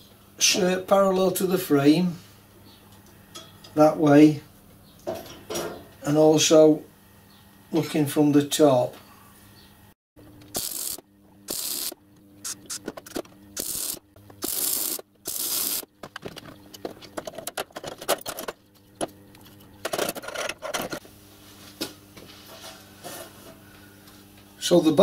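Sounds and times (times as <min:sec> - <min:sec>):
arc welder tack welds: 0:10.4 - 0:16.1.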